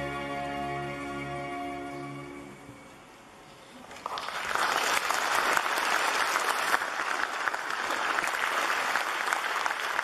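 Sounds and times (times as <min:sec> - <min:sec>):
crowd applauding: 0:03.9 - 0:10.0.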